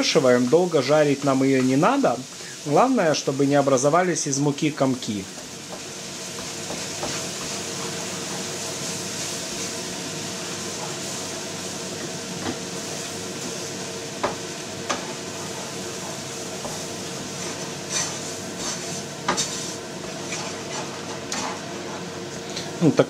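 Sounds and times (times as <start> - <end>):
wooden spatula scraping a pan: 5.3 - 11.3, 14.9 - 22.1.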